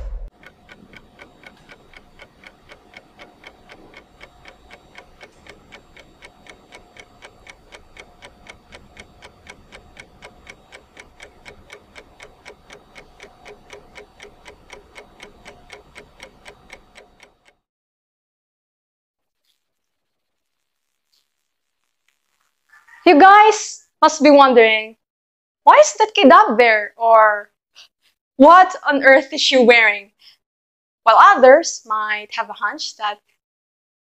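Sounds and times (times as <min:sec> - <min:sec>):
low hit: 0:00.0 - 0:00.3
rapid clock-like ticking: 0:00.3 - 0:17.6.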